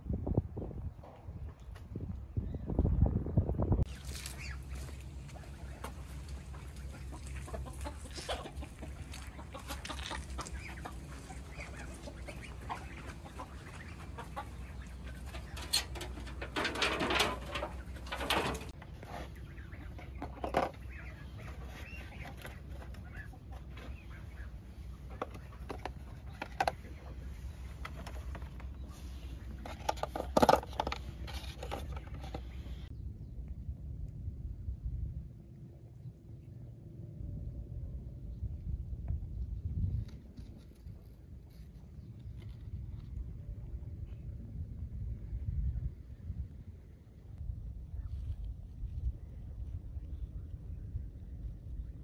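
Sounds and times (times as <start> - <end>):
chickens clucking: 3.9 - 32.9
low hum: 31.0 - 52.0.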